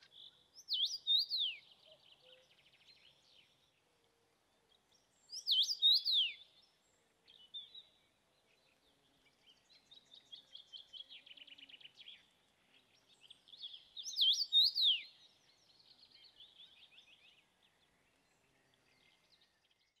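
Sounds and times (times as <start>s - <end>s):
bird whistled song: 0.6s - 3.5s, 5.3s - 6.7s, 13.2s - 17.4s.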